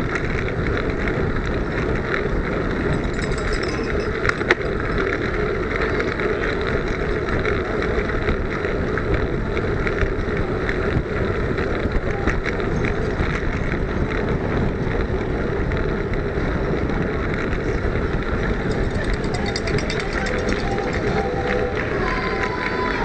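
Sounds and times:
road rumble: 0:00.0 - 0:23.0
faint ticks and rattles: 0:00.1 - 0:11.0, 0:17.3 - 0:21.6.

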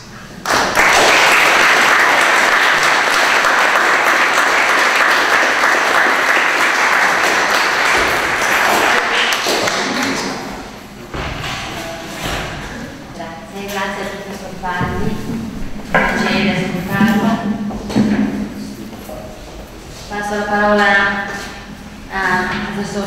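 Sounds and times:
audience applauding: 0:00.4 - 0:10.5.

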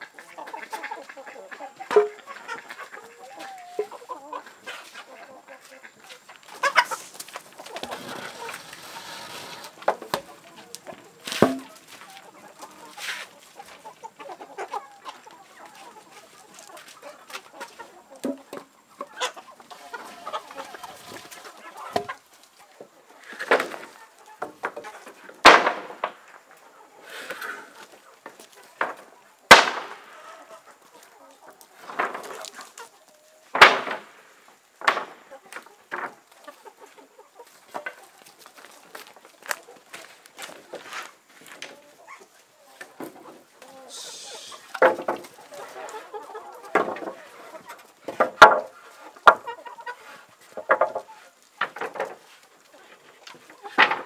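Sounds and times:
chickens clucking: 0:00.0 - 0:54.0
wooden boards knocking: 0:11.3 - 0:11.8, 0:48.1 - 0:49.4.

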